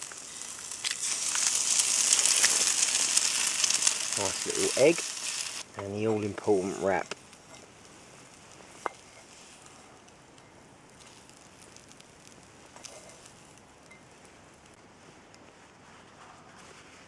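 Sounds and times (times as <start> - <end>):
food sizzling in a pot: 0.0 - 10.0, 10.9 - 14.1.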